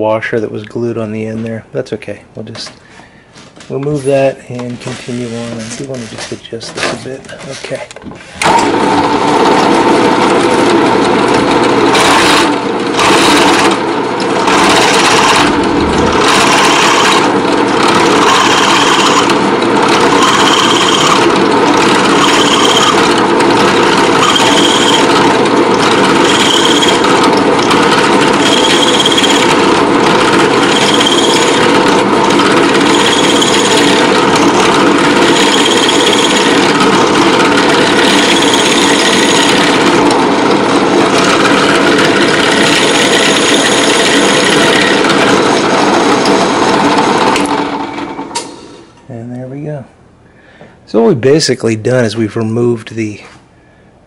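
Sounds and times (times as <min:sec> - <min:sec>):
drill press cutting metal: 0:08.4 - 0:48.9
high squeal from cutting: 0:24.2 - 0:25.1, 0:28.4 - 0:29.5, 0:30.7 - 0:31.6, 0:32.8 - 0:33.7.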